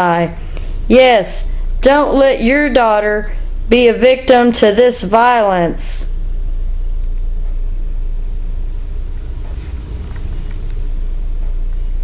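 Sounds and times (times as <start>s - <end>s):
low hum: 6.1s - 12.0s.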